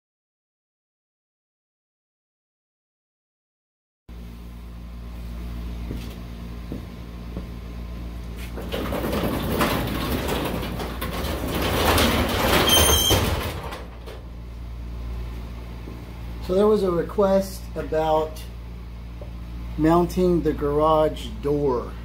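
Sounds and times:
steady low hum: 4.1s - 22.0s
garage door rattling down: 8.4s - 14.5s
high metallic squeal: 12.5s - 13.4s.

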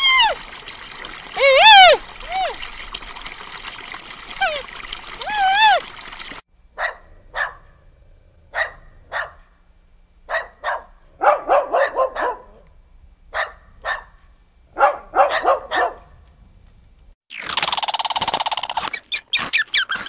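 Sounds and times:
animal barking: 1.4s - 2.6s, 6.8s - 7.8s, 8.5s - 9.5s, 10.3s - 12.7s, 13.4s - 14.2s, 14.8s - 16.1s.

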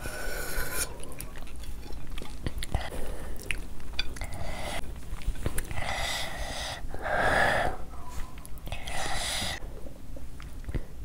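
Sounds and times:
noisy mouth breathing: 0.0s - 1.2s, 2.6s - 3.6s, 4.2s - 4.9s, 5.6s - 7.9s, 8.6s - 10.0s
chewing mouth clicks: 0.7s - 5.8s.

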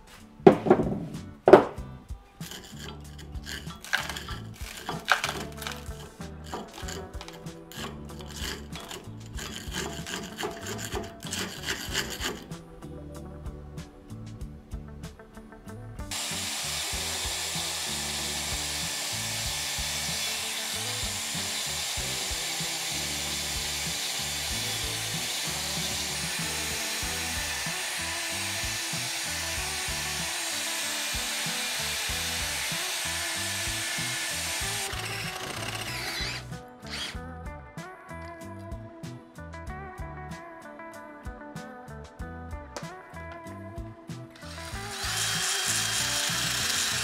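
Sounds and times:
angle grinder wire brush scouring: 2.4s - 12.6s, 16.1s - 37.2s, 44.4s - 47.0s
drill spinning wire brush: 2.4s - 12.6s, 16.1s - 37.2s, 44.4s - 47.0s.

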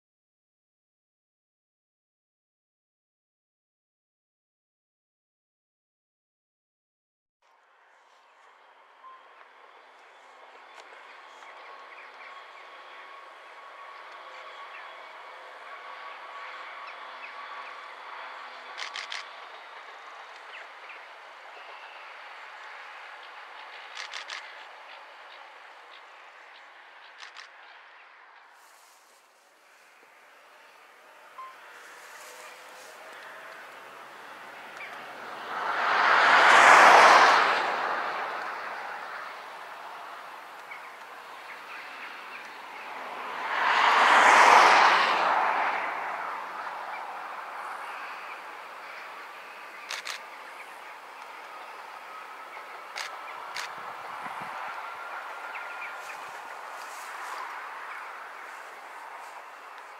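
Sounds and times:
outdoor background noise: 7.4s - 59.9s
distant train approaching: 7.5s - 59.9s
sharp clicks: 18.8s - 19.4s, 23.9s - 24.7s, 27.2s - 27.6s, 49.9s - 50.2s.

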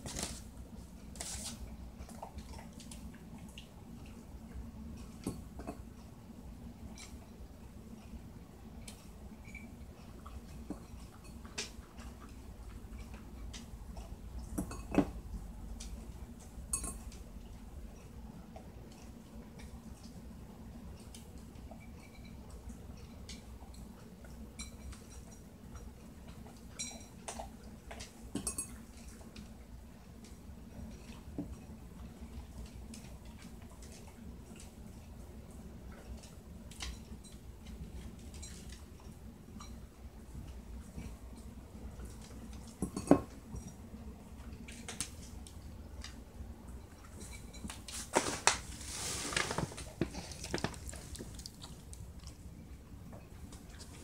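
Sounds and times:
dog crunching kibble: 48.2s - 52.6s.

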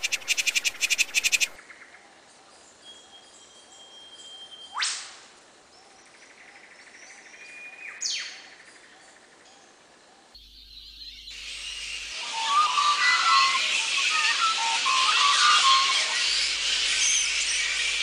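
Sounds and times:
buzzy bird-like trill: 0.0s - 1.6s, 10.4s - 18.0s
hiss: 11.4s - 18.0s.

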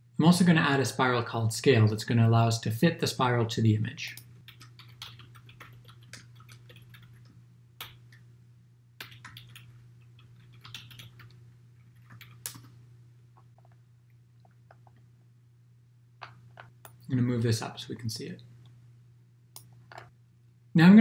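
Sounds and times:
faint low hum: 0.0s - 21.0s
typing on computer keyboard: 4.5s - 8.0s, 9.0s - 12.7s.

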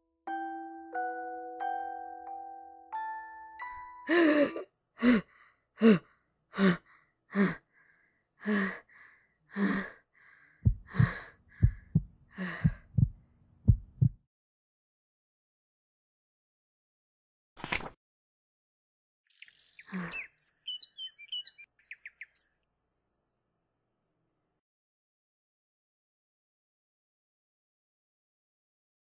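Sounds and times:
chiming mallet percussion: 0.2s - 4.1s
man gasping in pain: 4.1s - 7.6s
low heartbeat thumps: 10.6s - 14.2s.

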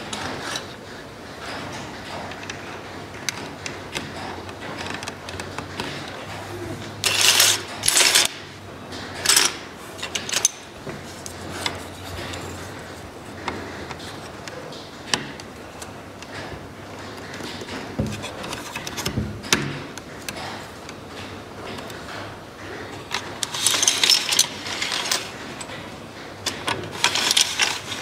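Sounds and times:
wooden toy parts clicking: 23.0s - 25.8s, 26.4s - 28.0s.

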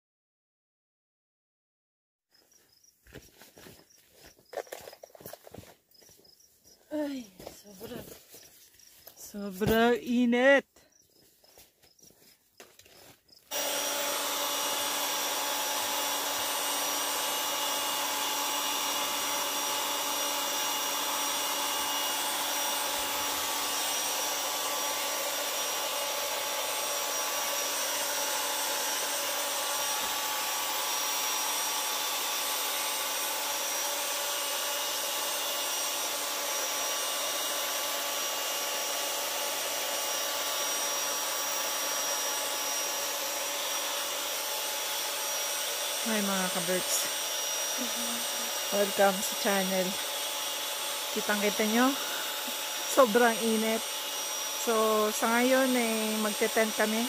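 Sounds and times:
machine whirring: 13.5s - 57.0s.

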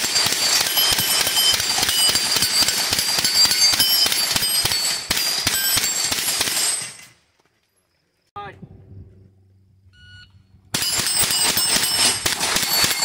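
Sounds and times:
rapid gunfire: 0.0s - 6.9s, 10.8s - 13.0s
steel plate targets ringing: 0.0s - 7.2s, 10.7s - 13.0s.

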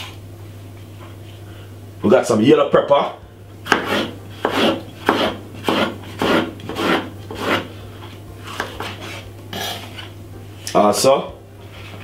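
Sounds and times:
knife slicing on wooden board: 3.7s - 7.7s, 8.4s - 10.2s.

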